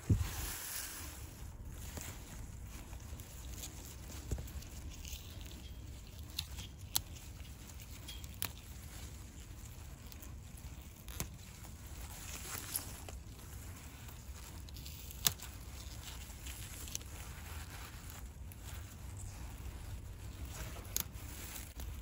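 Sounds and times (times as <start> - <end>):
wind rumble on microphone: 0.0 - 0.7
chive stalks rustling and snapping: 0.0 - 22.0.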